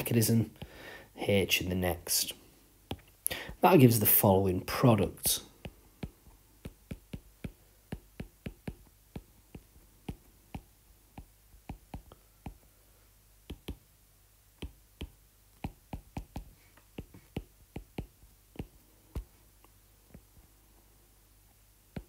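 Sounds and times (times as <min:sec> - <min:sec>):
stylus tapping on glass screen: 0:05.6 - 0:12.6, 0:13.5 - 0:13.8, 0:14.6 - 0:19.3.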